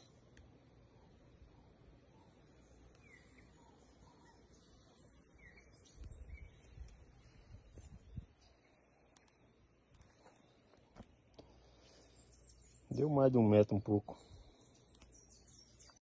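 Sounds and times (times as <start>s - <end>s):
faint bird chirps: 0.0s - 16.0s
low microphone rumble: 5.9s - 8.5s.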